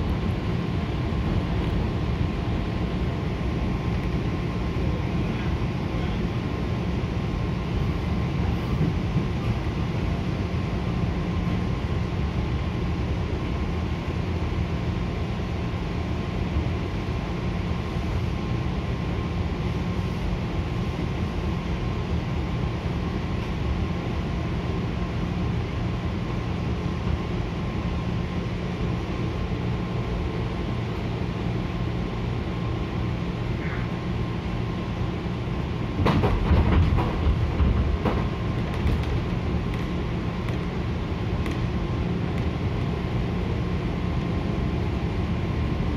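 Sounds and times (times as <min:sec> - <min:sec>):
train running rumble: 0:00.0 - 0:45.9
wheels clattering over track joints: 0:36.0 - 0:39.4.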